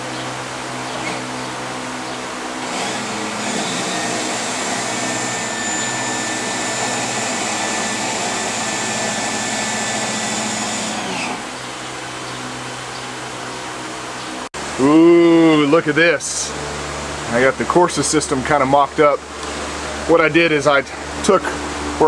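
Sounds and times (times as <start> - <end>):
electric pump motor running: 0.0 - 15.0.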